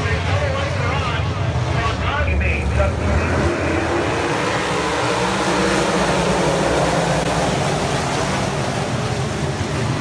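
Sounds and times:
racing car engines at high revs: 0:00.0 - 0:10.0.

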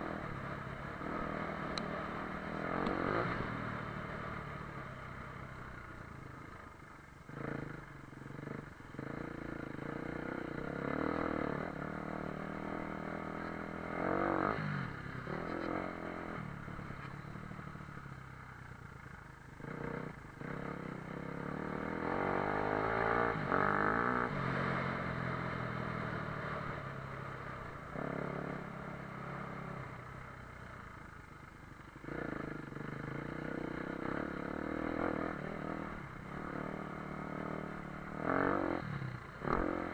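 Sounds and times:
dirt bike engine revving: 0:00.0 - 0:04.4, 0:07.3 - 0:17.4, 0:19.6 - 0:25.6, 0:32.0 - 0:39.9.

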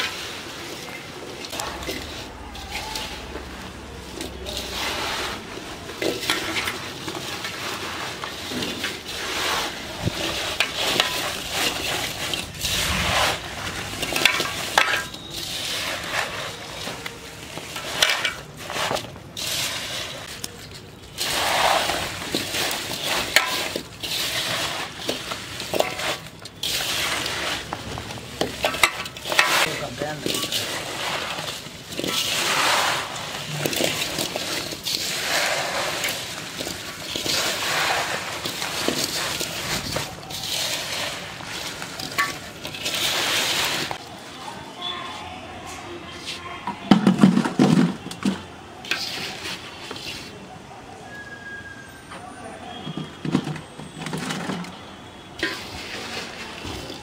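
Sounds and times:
hands mixing food in metal bowl: 0:00.0 - 0:51.3, 0:52.7 - 0:57.0.

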